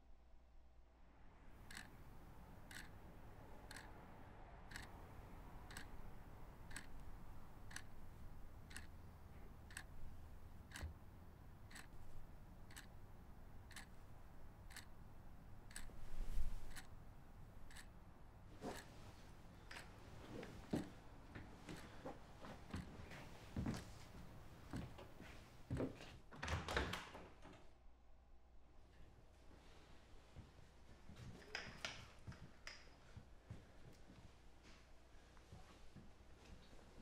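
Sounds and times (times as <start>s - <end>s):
clock ticking: 1.6s - 11.0s, 11.6s - 13.0s, 13.6s - 16.0s, 16.7s - 16.9s, 17.7s - 18.0s.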